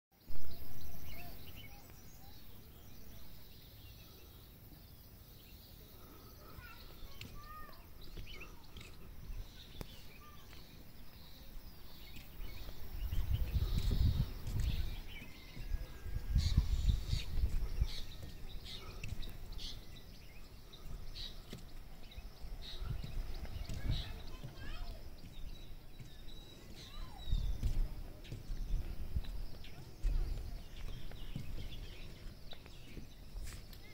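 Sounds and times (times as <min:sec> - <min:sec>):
bird chirps: 0:00.2 - 0:33.9
wind buffeting microphone: 0:11.6 - 0:33.8.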